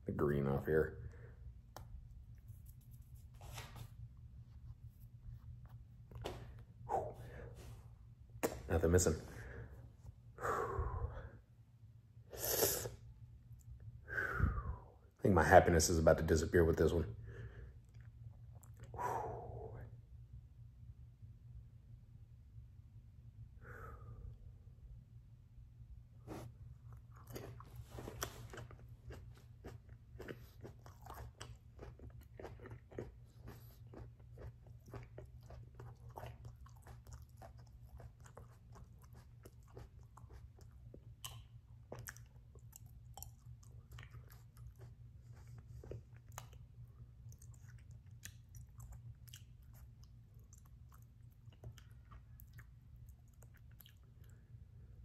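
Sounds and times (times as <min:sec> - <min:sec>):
steady low hum: 0:00.0 - 0:55.0
chewing and crunching chili: 0:15.4 - 0:19.0, 0:26.2 - 0:55.0.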